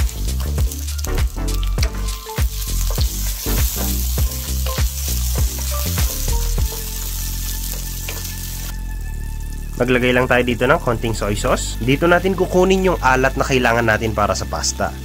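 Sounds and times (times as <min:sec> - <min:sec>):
food sizzling in hot oil: 0:00.0 - 0:09.8
background music with steady beat: 0:00.0 - 0:15.0.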